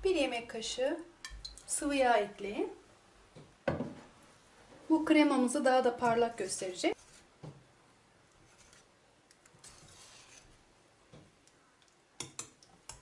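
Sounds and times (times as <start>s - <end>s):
whisk scraping in a pot: 9.6s - 10.6s.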